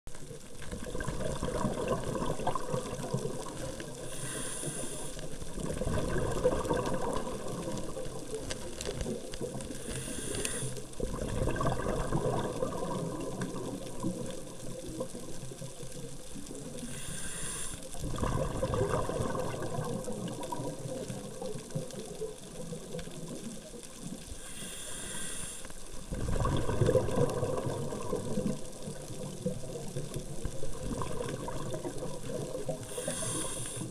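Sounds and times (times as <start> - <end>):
exhaled air bubbling: 0.2 - 33.9
regulator inhalation hiss: 4.0 - 5.4, 9.8 - 10.9, 16.8 - 18.0, 24.3 - 25.9, 32.8 - 33.9.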